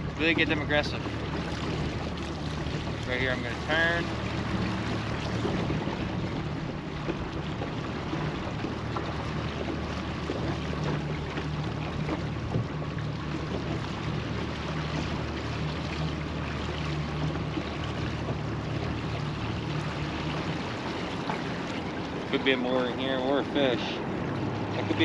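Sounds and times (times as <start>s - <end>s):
boat motor humming: 0.0s - 25.0s
hiss of water and wind: 0.0s - 25.0s.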